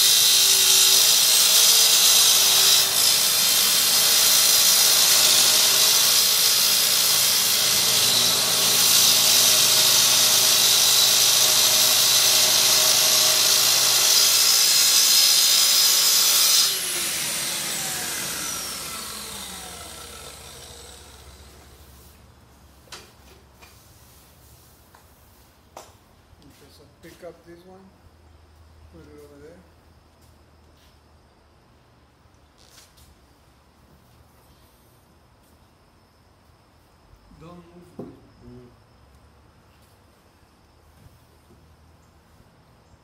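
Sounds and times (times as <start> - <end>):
track saw cutting wood: 0.0 - 22.1.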